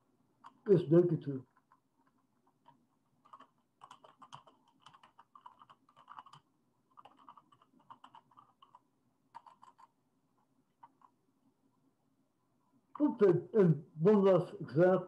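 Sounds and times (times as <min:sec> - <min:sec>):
faint typing on keyboard: 0:00.3 - 0:00.8, 0:01.4 - 0:11.9.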